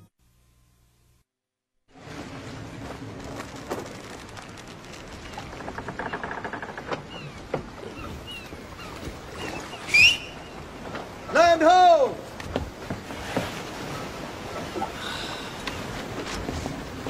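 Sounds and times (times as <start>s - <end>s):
wooden clicks and creaks: 3.2s - 9.2s.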